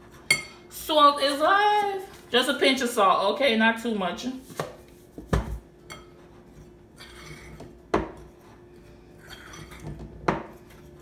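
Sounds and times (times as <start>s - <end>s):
soft scraping of stirring: 5.8s - 11.0s.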